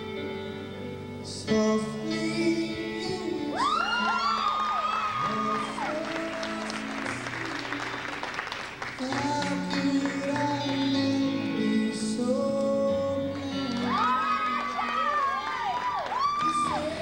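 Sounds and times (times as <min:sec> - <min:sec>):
music with long held notes: 0:00.0 - 0:17.0
audience applause: 0:04.4 - 0:10.9, 0:13.7 - 0:17.0.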